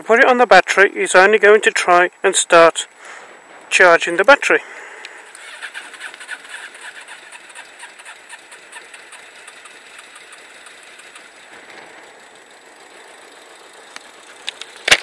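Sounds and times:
motorcycle engine idling: 0:04.6 - 0:15.0.

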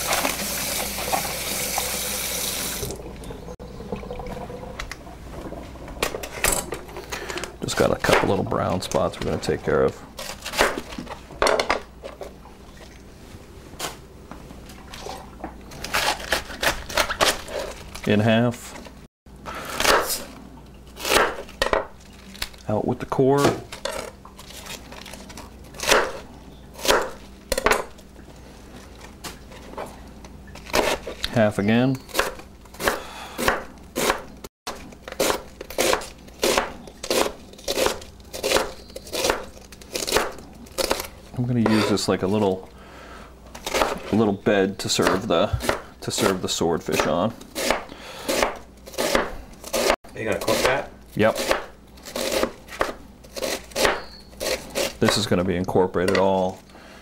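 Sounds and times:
knife chopping on cutting board: 0:32.1 - 0:34.3, 0:45.0 - 0:55.2.

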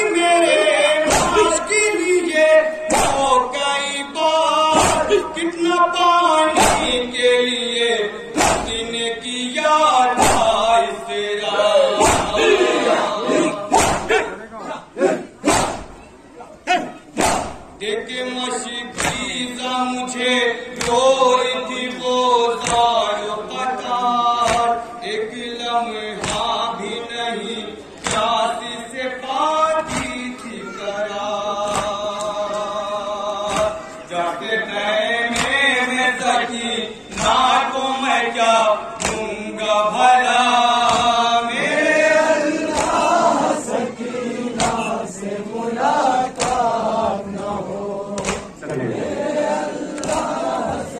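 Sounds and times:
people chanting a lament: 0:00.0 - 0:50.9
chest-beating slaps in unison: 0:01.0 - 0:01.6, 0:02.9 - 0:03.4, 0:04.7 - 0:05.3, 0:06.5 - 0:07.1, 0:08.3 - 0:09.0, 0:10.2 - 0:10.8, 0:12.0 - 0:12.6, 0:13.5 - 0:14.4, 0:15.0 - 0:16.1, 0:16.7 - 0:17.8, 0:18.9 - 0:19.4, 0:20.8 - 0:21.2, 0:22.6 - 0:23.0, 0:24.4 - 0:24.9, 0:26.2 - 0:26.6, 0:28.0 - 0:28.4, 0:29.8 - 0:30.3, 0:31.6 - 0:32.6, 0:33.4 - 0:33.8, 0:35.2 - 0:36.4, 0:37.1 - 0:37.6, 0:38.9 - 0:39.4, 0:40.8 - 0:41.9, 0:42.6 - 0:43.5, 0:44.5 - 0:45.0, 0:46.1 - 0:48.8, 0:49.9 - 0:50.6.

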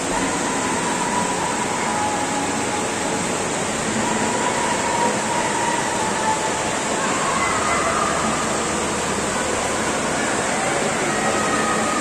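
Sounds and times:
shopping arcade background noise: 0:00.0 - 0:12.0.

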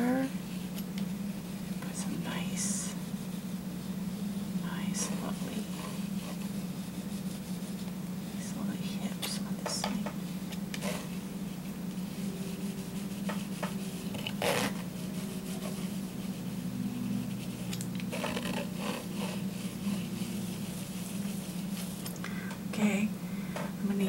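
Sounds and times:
steady low hum: 0:00.0 - 0:24.0
palette knife scraping canvas: 0:12.5 - 0:22.0.

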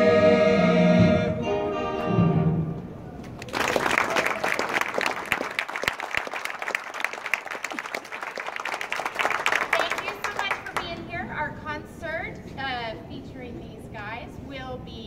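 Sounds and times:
audience applauding: 0:03.2 - 0:11.0.

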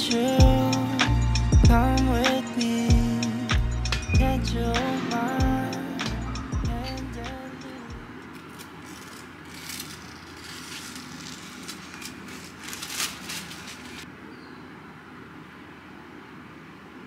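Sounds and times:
paper sheet rustling and crinkling: 0:08.2 - 0:14.1.

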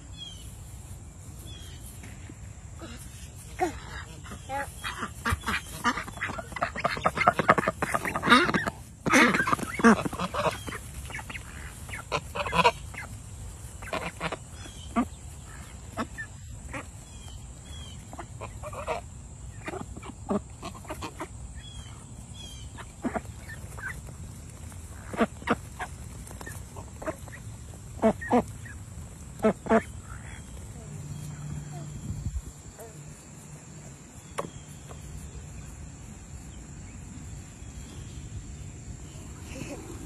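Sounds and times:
ducks quacking: 0:02.8 - 0:35.0
geese honking: 0:03.6 - 0:34.8.

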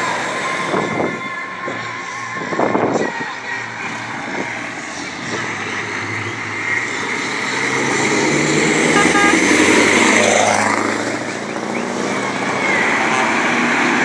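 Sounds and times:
truck engine passing by: 0:00.0 - 0:14.0
truck horn toots: 0:08.7 - 0:09.9, 0:12.2 - 0:14.0.

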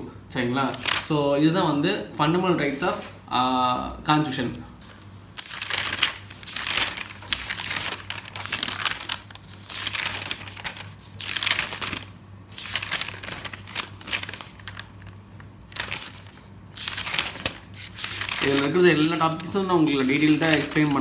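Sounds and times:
paper pages turning: 0:00.6 - 0:01.1, 0:04.9 - 0:21.0.

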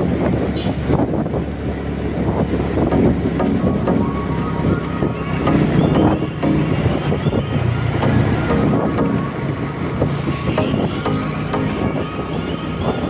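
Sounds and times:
wind buffeting microphone: 0:00.0 - 0:03.3.

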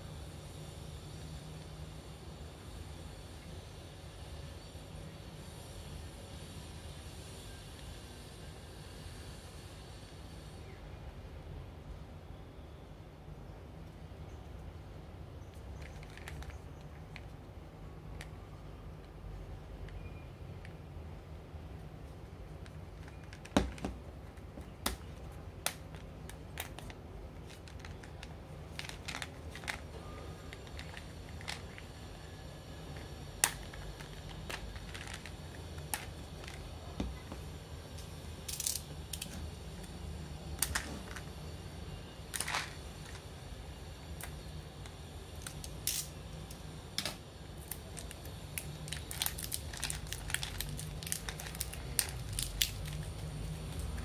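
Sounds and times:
steady low hum: 0:00.0 - 0:54.0
plastic bottle clicks and crinkles: 0:47.7 - 0:54.0.

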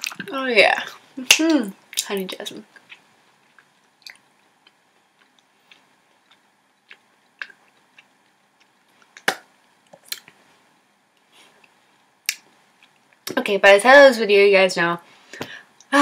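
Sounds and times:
person chewing with mouth clicks: 0:00.0 - 0:00.3, 0:02.7 - 0:10.4.

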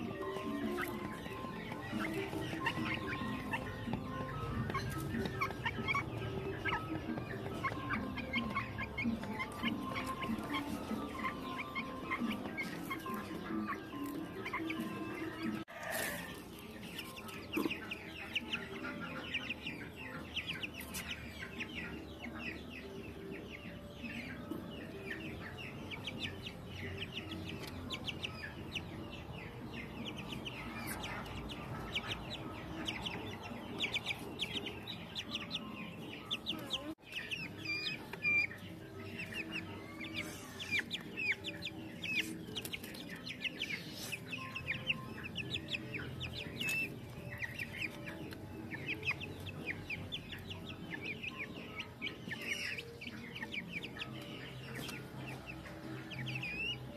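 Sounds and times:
chicks cheeping: 0:00.0 - 0:56.9.

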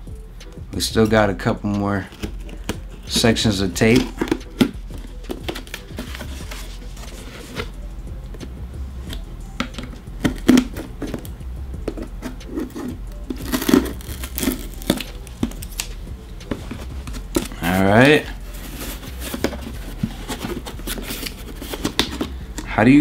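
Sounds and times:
tape crinkling: 0:02.0 - 0:07.7, 0:11.9 - 0:22.8
scissors cutting packing tape: 0:03.8 - 0:07.7, 0:09.1 - 0:11.3, 0:11.9 - 0:16.0, 0:18.7 - 0:22.3.

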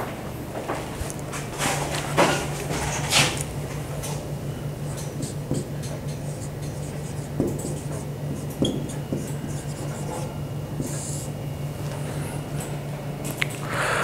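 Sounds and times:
steady low hum: 0:00.0 - 0:14.0
marker writing on a whiteboard: 0:04.8 - 0:11.3.

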